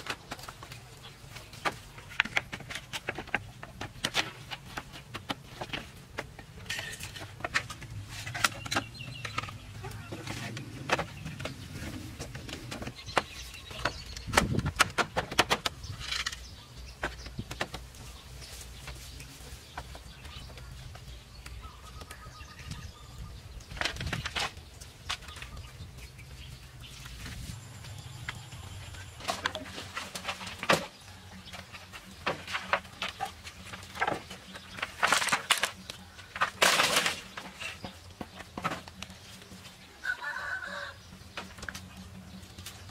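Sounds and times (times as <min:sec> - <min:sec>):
bamboo poles knocking: 0:00.0 - 0:18.1, 0:29.2 - 0:39.2.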